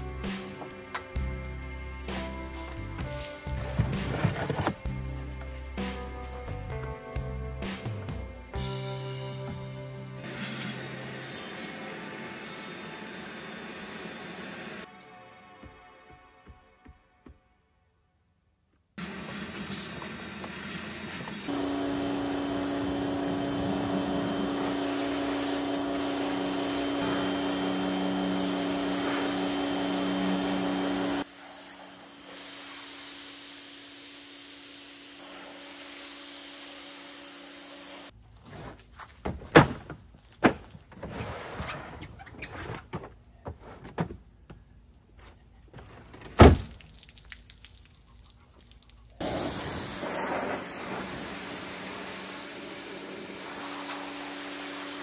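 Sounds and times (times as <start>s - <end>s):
pressure washer motor humming: 10.2s - 14.9s, 19.0s - 38.1s, 49.2s - 55.0s
hissing water spray: 19.0s - 38.1s, 49.2s - 55.0s.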